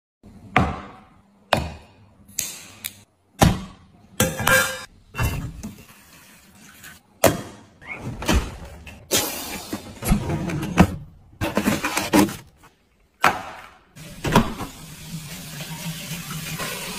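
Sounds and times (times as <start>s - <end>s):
tableware knocking and clinking: 4.2s - 4.9s.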